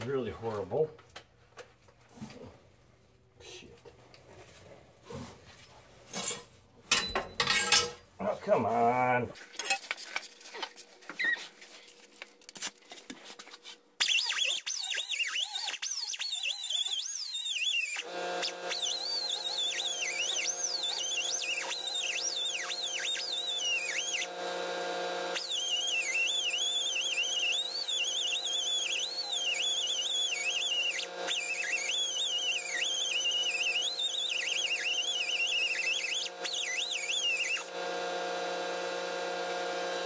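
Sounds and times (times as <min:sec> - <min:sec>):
electric grinder grinding metal: 0:14.2 - 0:40.0.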